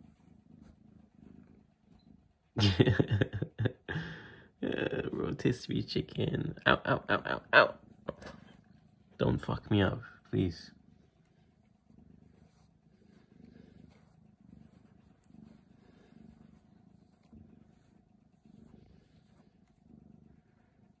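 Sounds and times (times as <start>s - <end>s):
cat purring faintly: 0.0s - 21.0s.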